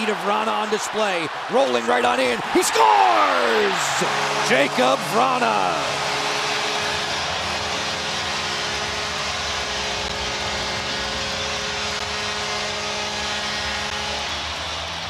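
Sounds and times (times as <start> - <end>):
crowd cheering: 0.0 - 15.0
long goal horn: 3.1 - 14.6.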